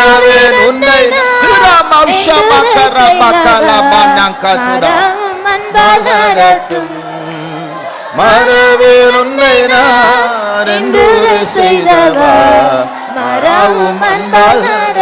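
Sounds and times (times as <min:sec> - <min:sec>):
person singing worship song: 0:00.0 - 0:15.0.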